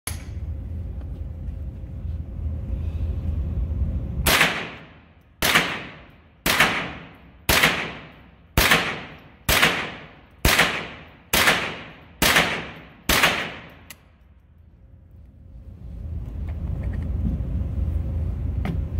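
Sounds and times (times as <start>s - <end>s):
low rumble: 0.1s - 18.9s
rifle shots echoing: 4.3s - 13.9s.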